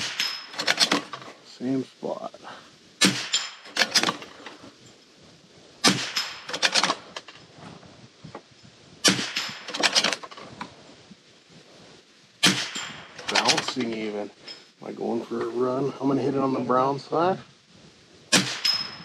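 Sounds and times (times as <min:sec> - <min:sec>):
rifle shots: 0:00.0 - 0:01.2, 0:03.0 - 0:04.4, 0:05.8 - 0:07.2, 0:09.0 - 0:10.4, 0:12.4 - 0:13.7, 0:18.3 - 0:19.0
steel target clacks: 0:00.0 - 0:01.2, 0:03.0 - 0:04.5, 0:05.8 - 0:07.4, 0:09.0 - 0:10.4, 0:12.4 - 0:14.6, 0:18.3 - 0:19.0.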